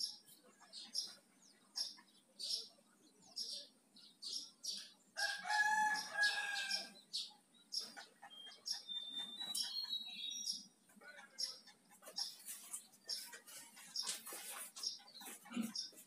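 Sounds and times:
bird chirping: 0:00.0 - 0:16.0
rooster crowing: 0:05.2 - 0:06.9.

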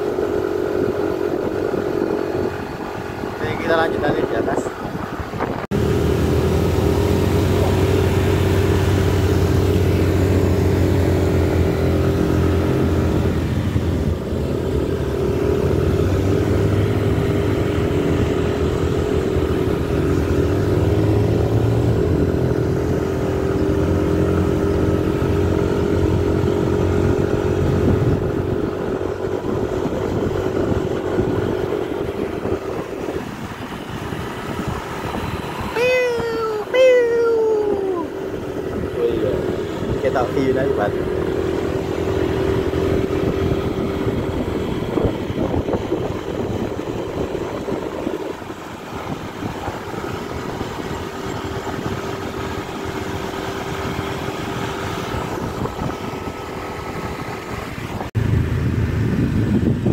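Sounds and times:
motor scooter engine running: 0:00.0 - 0:59.9.

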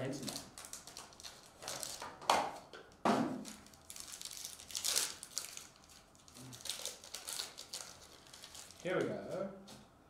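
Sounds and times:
foil wrapper crinkling: 0:00.1 - 0:02.1, 0:03.4 - 0:08.9.

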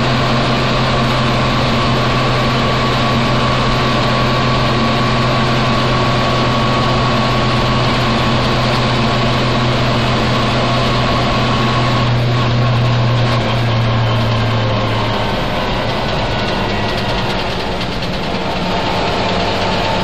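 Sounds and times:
truck engine humming: 0:00.0 - 0:20.0.

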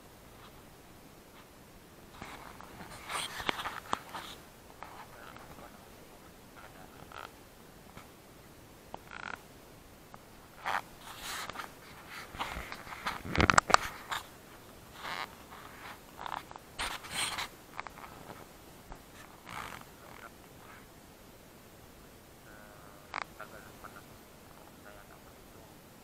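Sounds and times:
close scraping and rustling: 0:02.1 - 0:05.8, 0:10.6 - 0:20.9
sharp scrapes and clicks: 0:15.0 - 0:18.4.

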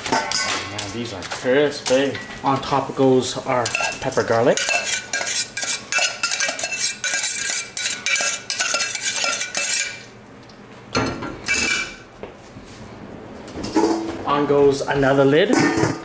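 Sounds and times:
metal spoon scraping saucepan: 0:03.6 - 0:10.1.

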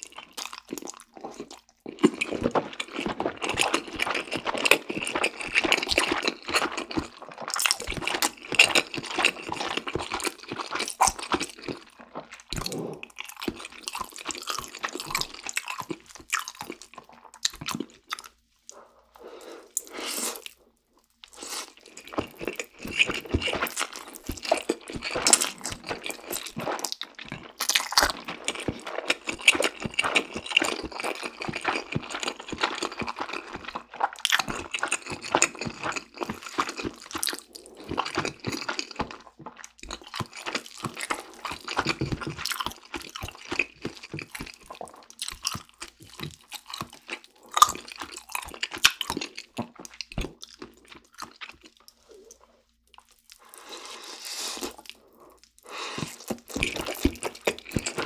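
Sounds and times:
chewing and lip smacking: 0:00.0 - 0:19.1, 0:19.7 - 0:58.0
noodle slurping: 0:18.7 - 0:20.6, 0:53.4 - 0:58.0.

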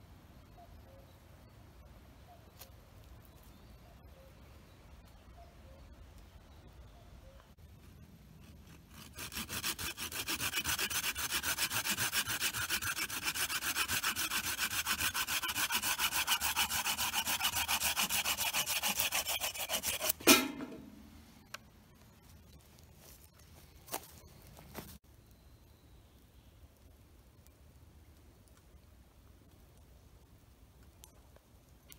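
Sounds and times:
hand saw cutting wood: 0:08.4 - 0:20.5
sharp loud knock: 0:20.2 - 0:20.9.

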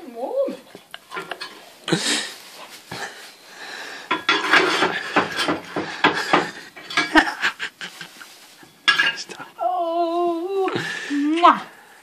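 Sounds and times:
logs and metal clattering: 0:00.8 - 0:03.3, 0:04.0 - 0:09.5.

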